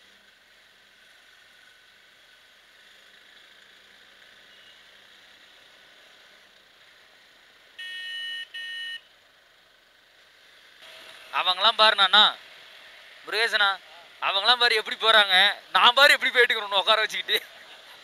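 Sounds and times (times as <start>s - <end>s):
faint riding hiss: 0.0s - 18.0s
vehicle horn honks: 7.8s - 9.1s.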